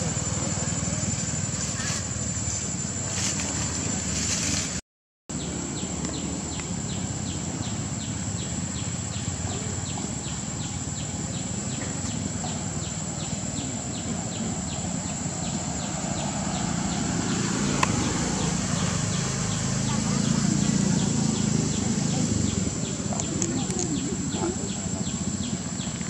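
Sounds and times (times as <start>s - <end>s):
high-pitched insect drone: 5.4s - 26.0s.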